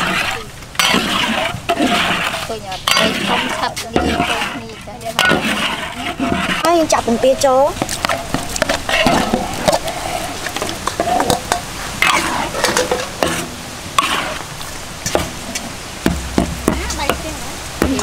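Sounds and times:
metal spatula scraping wok: 0:00.0 - 0:07.4, 0:08.0 - 0:14.5.

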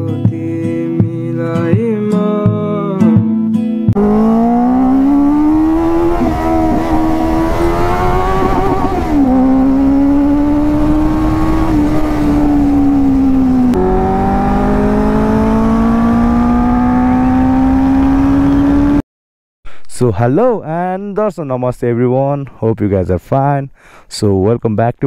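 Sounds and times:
motorcycle engine accelerating: 0:04.0 - 0:19.0.

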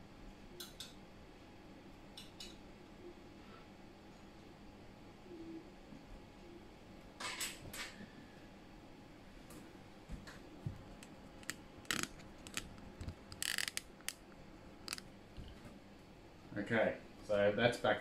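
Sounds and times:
sharp clicks: 0:11.0 - 0:14.2.

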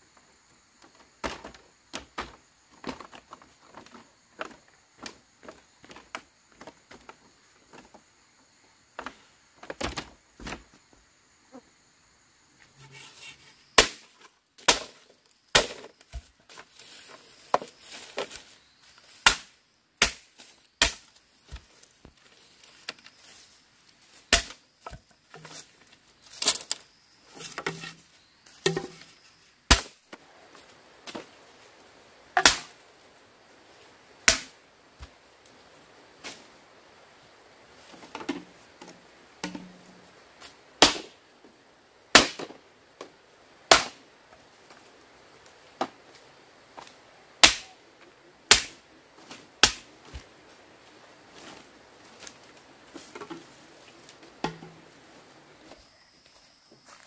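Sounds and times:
machete chopping bamboo: 0:13.8 - 0:16.3, 0:19.2 - 0:21.7, 0:24.3 - 0:25.0, 0:29.7 - 0:30.0, 0:32.4 - 0:32.7, 0:34.2 - 0:34.6, 0:40.8 - 0:41.2, 0:42.1 - 0:42.6, 0:43.7 - 0:44.0, 0:47.4 - 0:47.7, 0:48.5 - 0:48.8, 0:49.6 - 0:49.9.

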